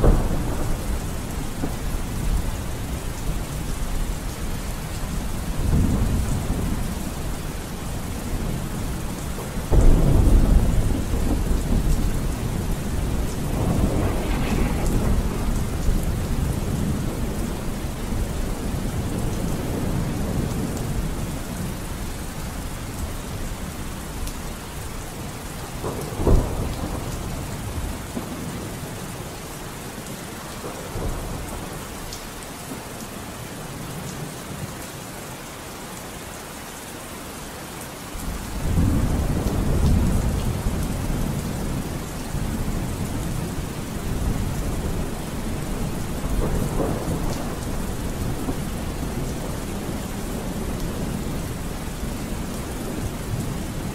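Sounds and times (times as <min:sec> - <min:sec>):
rolling thunder: 0:00.0 - 0:21.7, 0:25.6 - 0:28.9, 0:38.2 - 0:53.9
steady rain: 0:00.0 - 0:53.9.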